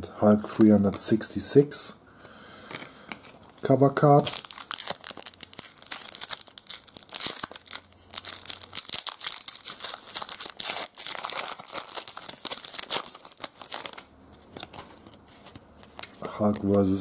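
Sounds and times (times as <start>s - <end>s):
foil wrapper tearing and crinkling: 4.2s - 16.9s.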